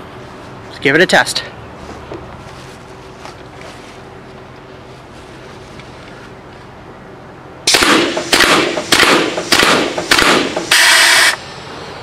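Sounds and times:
paintball gun pneumatic shots: 7.7 - 11.4.

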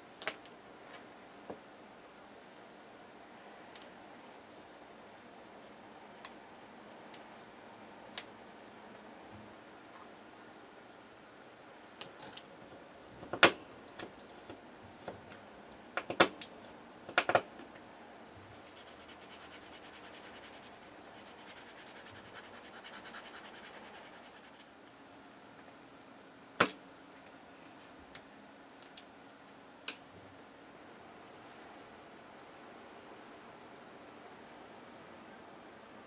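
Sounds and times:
plastic part being sanded: 18.6 - 24.6.

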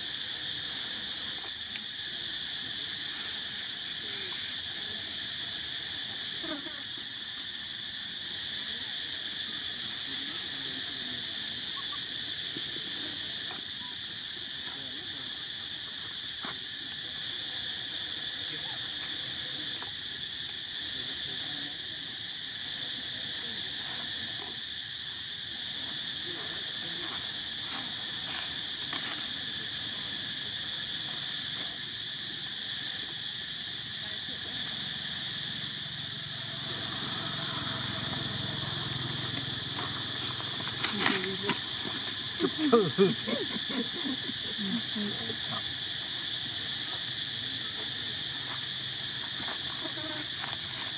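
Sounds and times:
high-pitched insect chorus: 0.0 - 50.9
monkey calls: 11.6 - 13.1, 40.6 - 45.8.

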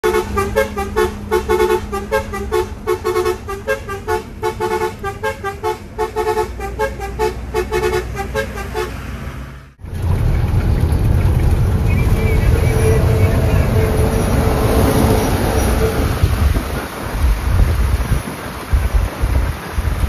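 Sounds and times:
bright horn-like melody: 0.0 - 9.0, 12.3 - 16.4.

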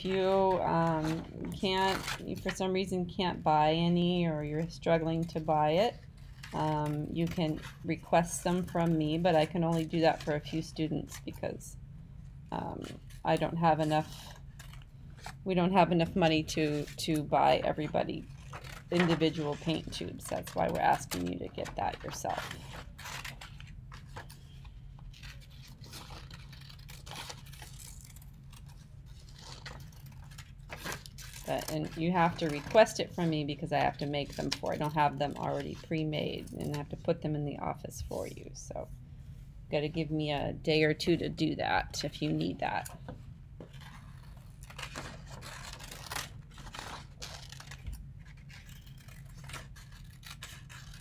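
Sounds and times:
scissors snipping paper: 0.0 - 2.8, 3.6 - 11.4, 16.0 - 24.4, 25.1 - 37.0, 43.7 - 51.0
paper rustling: 16.3 - 37.0.

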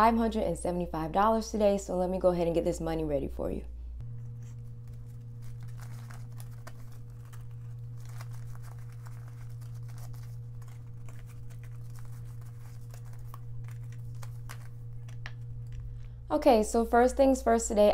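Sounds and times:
steady low hum: 0.0 - 17.9
banknotes rustling: 4.2 - 16.1.

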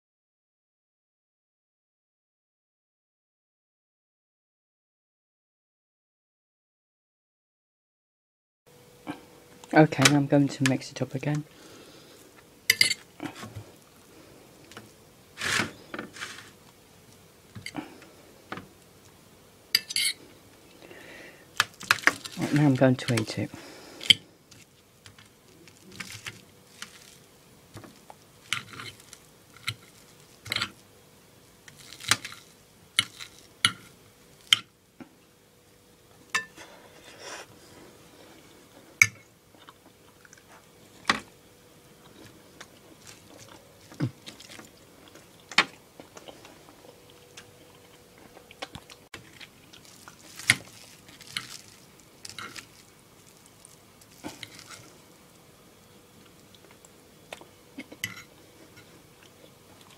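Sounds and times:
chewing: 39.5 - 41.1, 42.0 - 55.1, 56.2 - 59.9.

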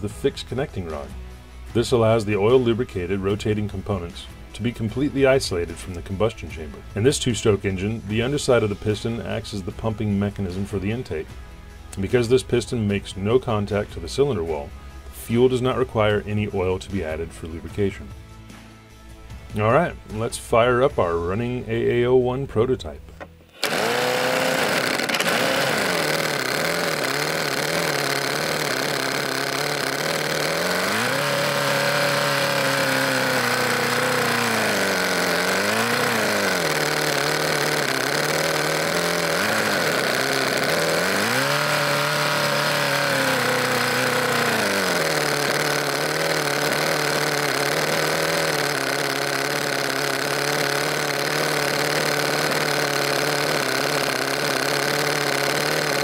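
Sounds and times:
engine idling and revving: 23.6 - 56.0.

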